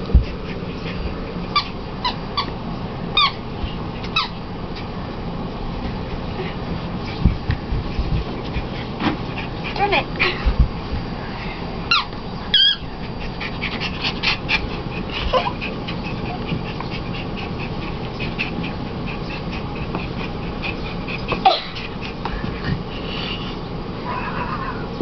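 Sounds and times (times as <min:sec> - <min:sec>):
puppy yipping: 0:01.5 - 0:02.5, 0:03.2 - 0:03.4, 0:04.1 - 0:04.4, 0:11.9 - 0:12.9, 0:21.4 - 0:21.9.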